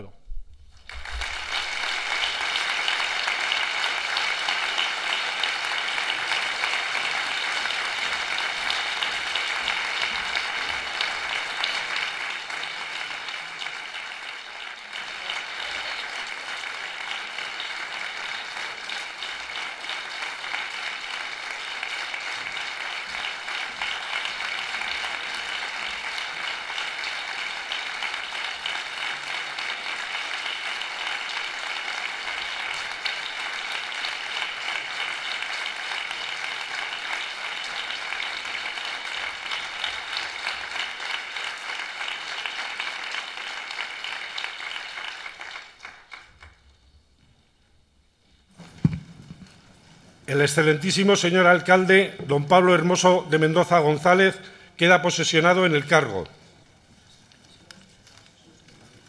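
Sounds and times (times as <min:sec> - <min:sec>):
crowd applause: 0:00.8 - 0:46.6.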